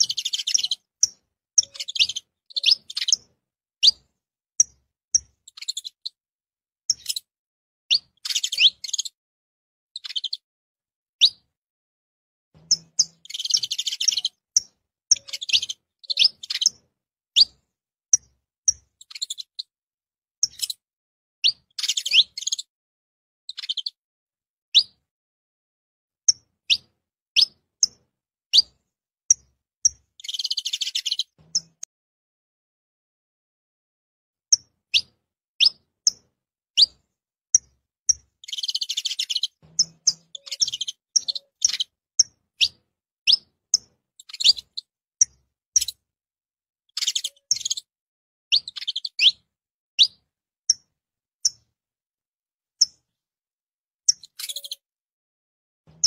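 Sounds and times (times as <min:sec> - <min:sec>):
bird chirping and twittering: 0:00.0 - 0:06.2, 0:06.9 - 0:07.3, 0:07.9 - 0:09.2, 0:10.0 - 0:10.4, 0:11.2 - 0:11.5, 0:12.6 - 0:19.7, 0:20.4 - 0:20.8, 0:21.4 - 0:22.7, 0:23.5 - 0:24.0, 0:26.3 - 0:31.9, 0:34.5 - 0:46.0, 0:46.9 - 0:47.9, 0:48.5 - 0:51.7, 0:54.1 - 0:54.9.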